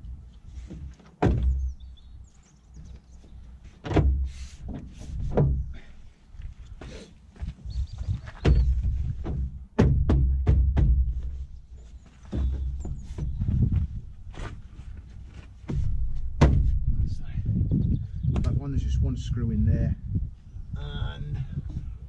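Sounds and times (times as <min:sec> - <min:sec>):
plastic door panel thunks: 0:00.7 - 0:01.7, 0:03.8 - 0:05.7, 0:08.4 - 0:11.2, 0:15.7 - 0:16.8.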